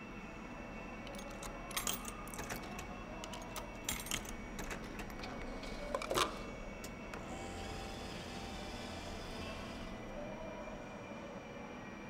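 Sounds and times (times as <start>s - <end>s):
keys jingling against metal lock: 1.0s - 7.2s.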